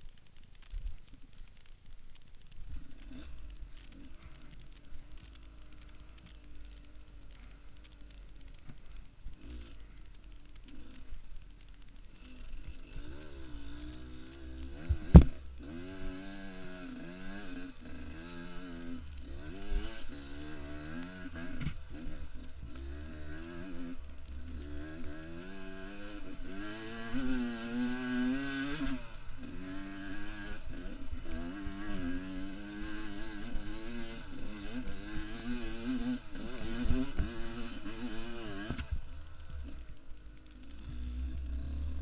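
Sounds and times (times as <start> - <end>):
dirt bike engine revving: 2.7 - 42.0
sharp thump: 14.8 - 15.4.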